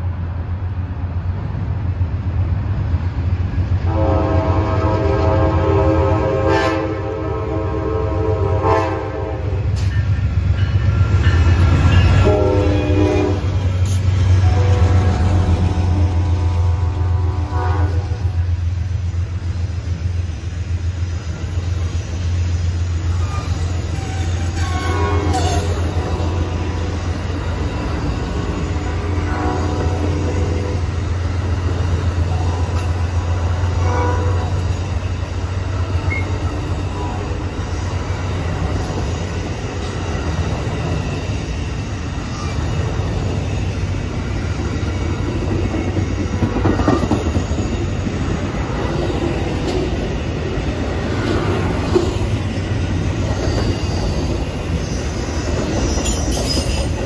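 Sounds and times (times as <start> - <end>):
train wheels rumbling on rails: 0.0 - 57.0
wheel squeals: 53.1 - 57.0.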